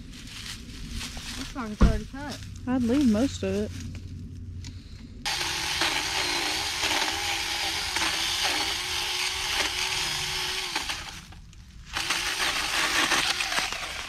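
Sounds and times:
electric chainsaw cutting branches: 0:05.3 - 0:14.0.

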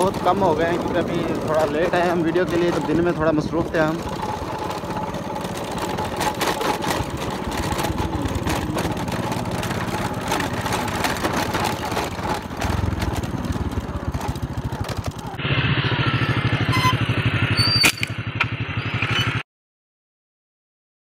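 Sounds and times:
vehicle engine chugging: 0:00.0 - 0:19.4.

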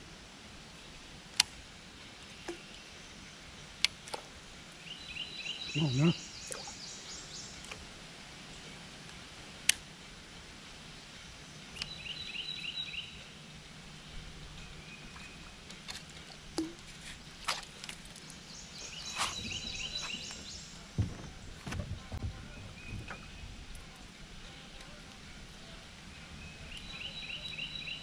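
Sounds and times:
faint low hum: 0:11.0 - 0:28.0
songbird singing high notes: 0:18.5 - 0:20.7
sharp clicks and knocks: 0:21.0 - 0:23.2.

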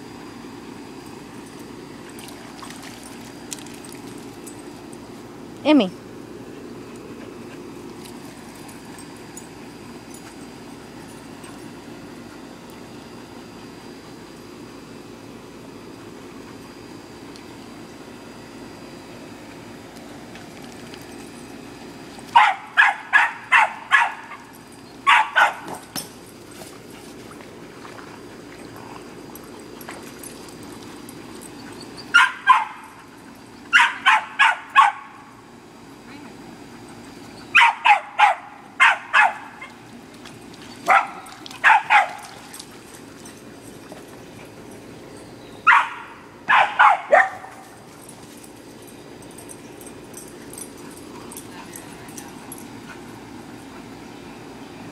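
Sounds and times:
dog barking: 0:22.4 - 0:24.4, 0:25.1 - 0:25.7, 0:32.1 - 0:32.8, 0:33.7 - 0:35.1, 0:37.5 - 0:39.6, 0:40.9 - 0:42.2, 0:45.7 - 0:47.6.

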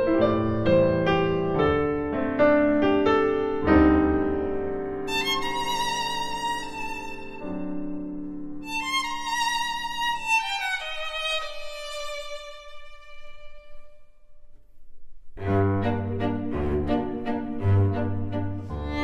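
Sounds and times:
slow violin melody: 0:05.0 - 0:14.6, 0:15.4 - 0:19.0.

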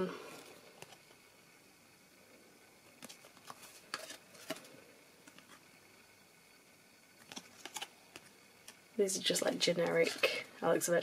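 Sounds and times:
trading cards clicking and rustling: 0:07.2 - 0:08.8.

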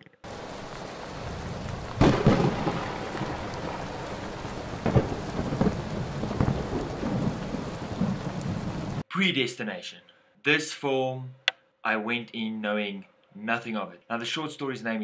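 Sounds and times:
steady rain: 0:00.2 - 0:09.0
thunderclap: 0:00.3 - 0:09.0.

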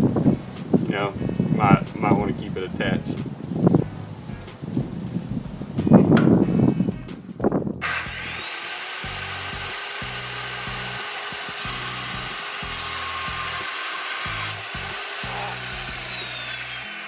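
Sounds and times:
circular saw cutting wood: 0:07.8 - 0:17.0.

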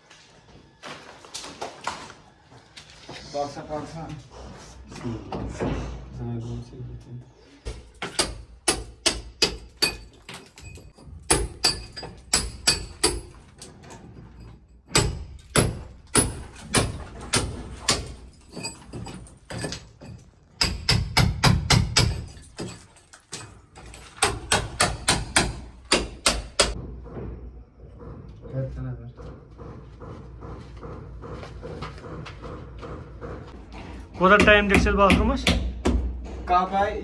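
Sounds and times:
hammer striking brick wall: 0:07.7 - 0:13.8, 0:14.8 - 0:28.3, 0:29.2 - 0:36.5.

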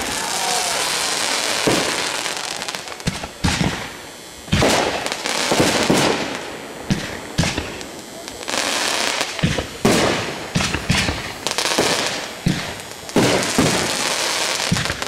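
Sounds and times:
crackle and hiss of rising tails: 0:00.0 - 0:15.0
fireworks bangs: 0:00.0 - 0:15.0.

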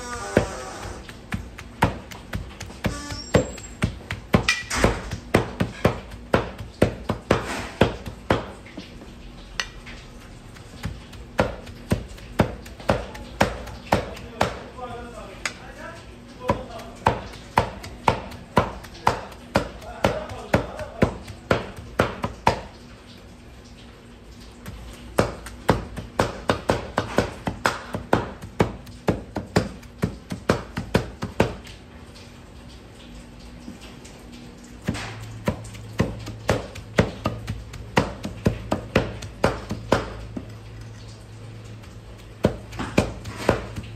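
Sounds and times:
knife chopping meat on wooden block: 0:00.3 - 0:08.6, 0:10.5 - 0:14.8, 0:16.4 - 0:22.7, 0:24.7 - 0:31.6, 0:34.8 - 0:40.6, 0:42.2 - 0:43.9.

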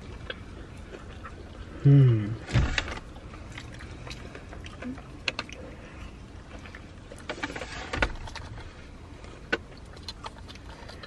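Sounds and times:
people chewing food: 0:00.0 - 0:11.0.

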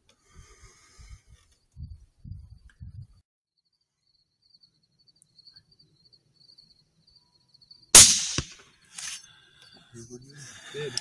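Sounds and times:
night insects trilling: 0:03.6 - 0:11.0.

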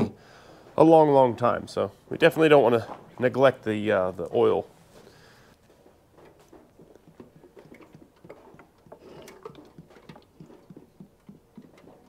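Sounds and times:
oil glugging into a funnel: 0:06.3 - 0:12.0.

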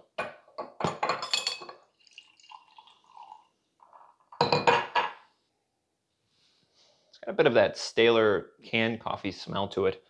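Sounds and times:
glassware clattering: 0:00.2 - 0:05.2
liquid trickling into glass: 0:01.4 - 0:03.6.

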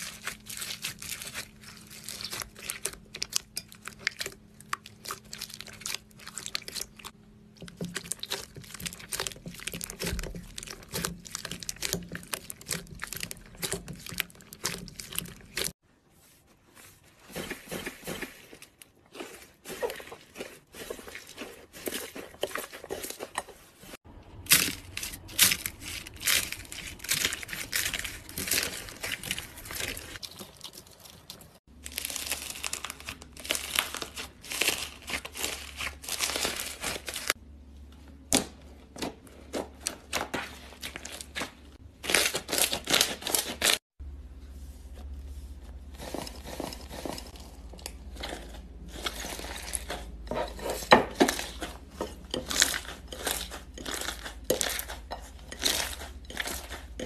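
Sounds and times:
slime crackling and popping: 0:24.4 - 0:37.3.

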